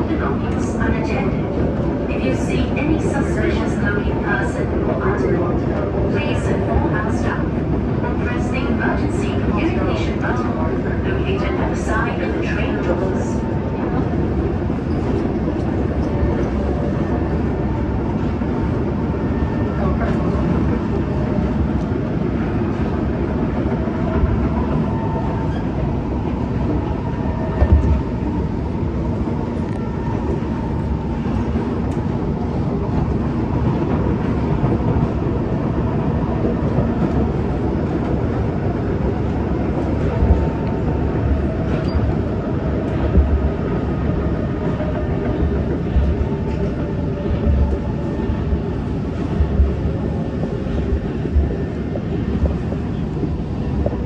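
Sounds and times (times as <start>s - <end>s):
wheels rumbling on rail: 0.0s - 54.0s
train knocks: 27.5s - 28.1s, 45.2s - 54.0s.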